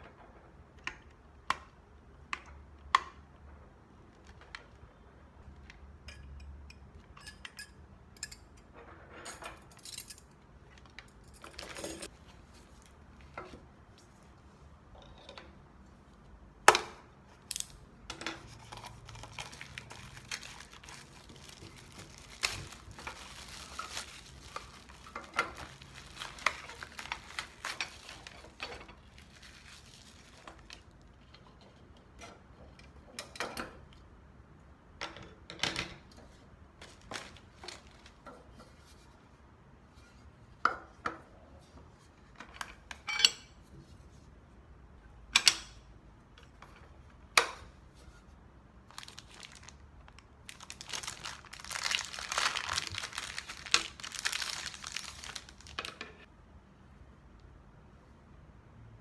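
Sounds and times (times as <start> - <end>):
plastic wrap crinkling: 18.5 - 31.1, 48.9 - 56.0.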